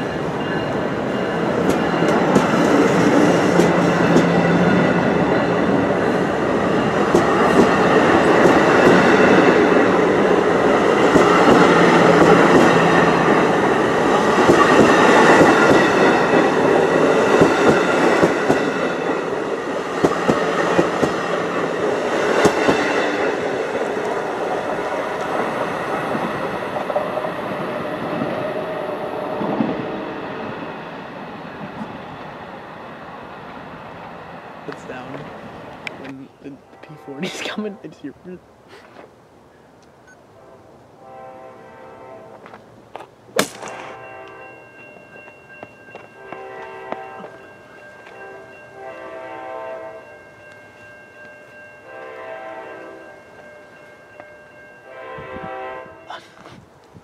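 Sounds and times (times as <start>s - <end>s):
train coaches rumbling past: 0.0s - 39.2s, 40.3s - 57.0s
wheels clicking over rail joints: 1.4s - 28.4s.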